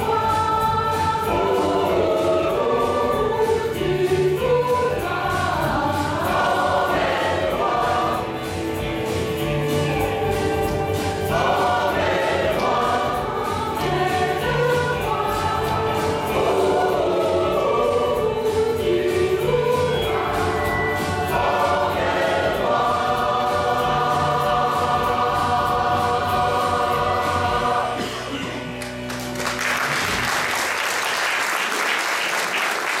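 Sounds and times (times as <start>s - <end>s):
mixed choir singing: 0.0s - 28.8s
audience applause: 28.8s - 33.0s.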